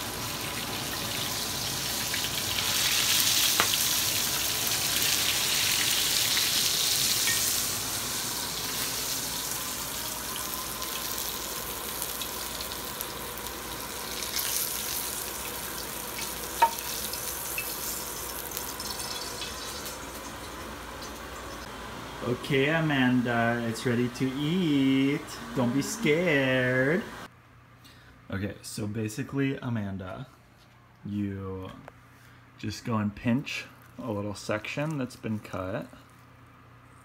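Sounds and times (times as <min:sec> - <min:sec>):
fish sizzling in hot oil: 0:00.0 - 0:21.7.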